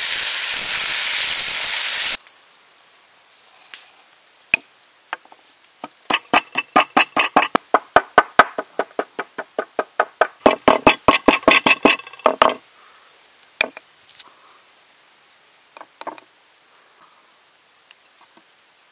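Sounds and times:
pestle pounding in stone mortar: 5.8s - 12.6s.

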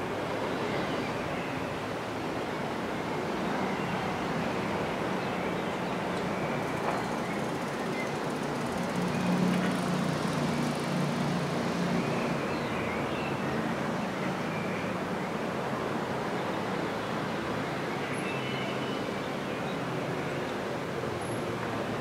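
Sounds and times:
road traffic engine hum: 5.7s - 12.5s.

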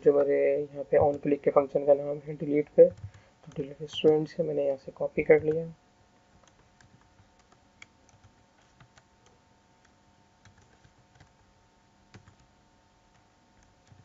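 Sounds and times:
computer keyboard typing: 2.4s - 4.3s, 5.2s - 5.7s, 6.4s - 11.5s, 12.1s - 12.5s, 13.1s - 14.0s.

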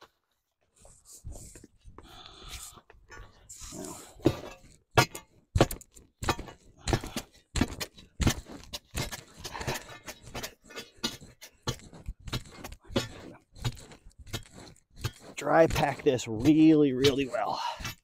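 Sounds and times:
digging bar crunching into gravel: 3.5s - 18.0s.

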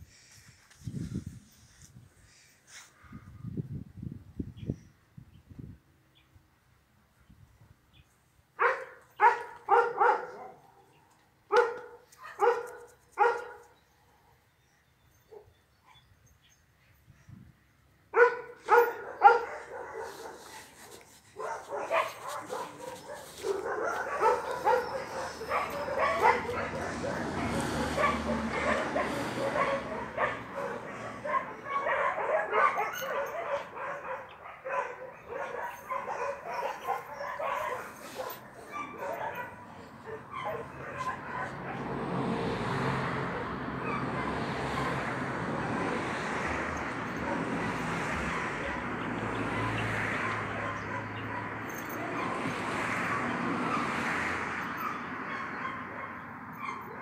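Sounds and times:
dog barking: 8.6s - 10.9s, 11.5s - 13.7s, 18.1s - 42.1s, 43.1s - 57.0s.

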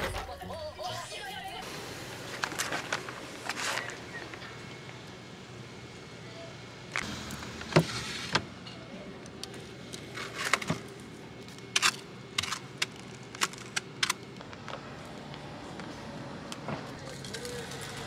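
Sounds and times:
steady low hum: 0.0s - 18.0s
plastic cup of ice rattling: 17.0s - 18.0s.

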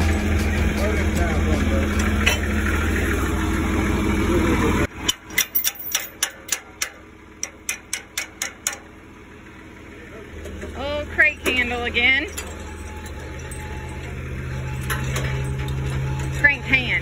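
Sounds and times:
tractor engine idling: 0.0s - 17.0s.

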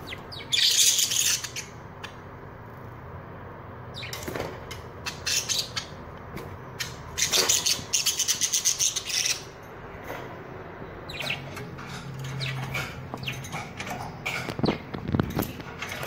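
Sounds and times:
budgerigars chirping and chattering: 0.0s - 2.2s, 3.9s - 6.0s, 6.7s - 9.6s, 11.0s - 15.5s.

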